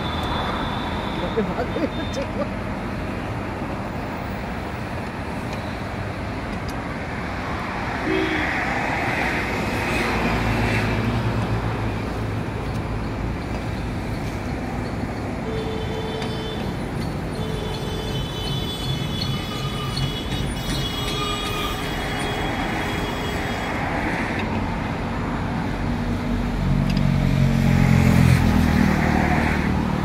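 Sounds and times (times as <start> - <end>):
road traffic noise: 0.0 - 30.0.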